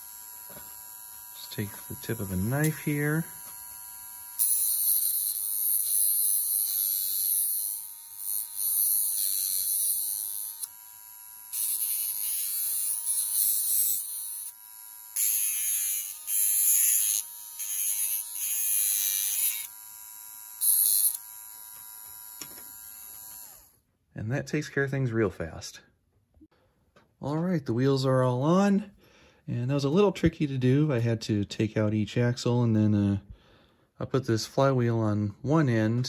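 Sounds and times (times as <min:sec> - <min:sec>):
small electric motor whining: 0:00.0 - 0:23.8.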